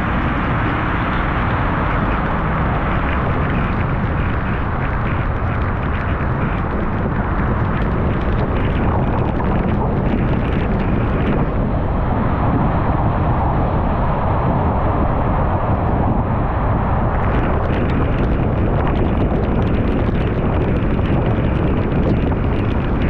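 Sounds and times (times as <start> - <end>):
rain pattering on glass: 2.0 - 11.4, 17.2 - 23.0.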